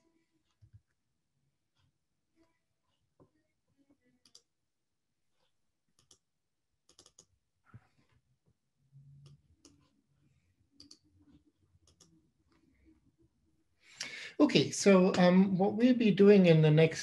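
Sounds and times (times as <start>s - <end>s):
computer mouse clicks: 4.2s - 4.5s, 6.0s - 6.2s, 6.9s - 7.3s, 10.8s - 12.6s.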